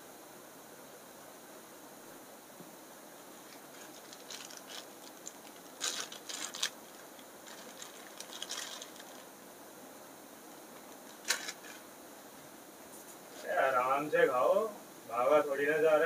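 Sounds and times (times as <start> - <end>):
foil snack packet crinkling: 3.5 - 9.3, 11.0 - 11.8.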